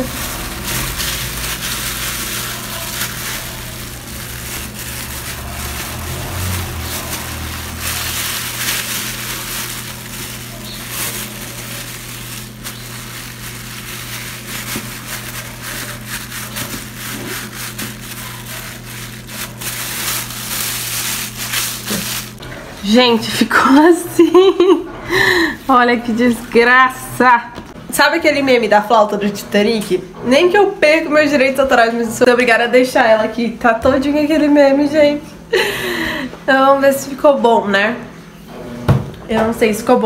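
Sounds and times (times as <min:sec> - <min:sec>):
plastic bag crinkling: 0:00.0 - 0:22.4.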